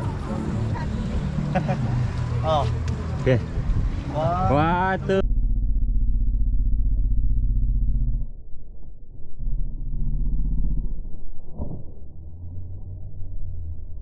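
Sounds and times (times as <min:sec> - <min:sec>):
deep muffled slowed drone: 0:05.0 - 0:14.0.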